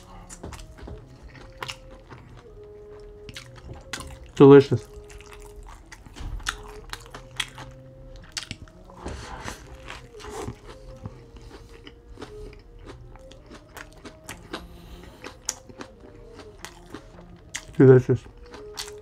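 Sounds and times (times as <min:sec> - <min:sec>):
moist chewing and lip smacks: 0:00.2 - 0:08.9, 0:09.5 - 0:19.0
biting into burger: 0:04.9 - 0:19.0.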